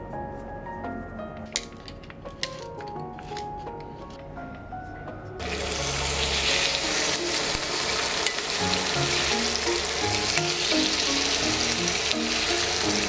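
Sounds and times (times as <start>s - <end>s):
soft background music: 0.0s - 13.0s
chicken sizzling in hot oil: 5.4s - 13.0s.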